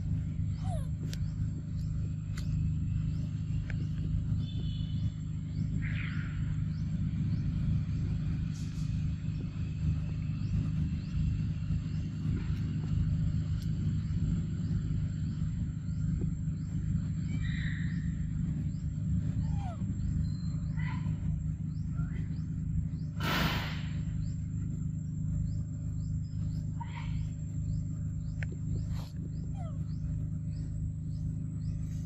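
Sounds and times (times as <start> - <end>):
high animal calls: 0.0 - 1.5, 15.7 - 22.4, 26.5 - 32.0
low rumble: 0.0 - 32.0.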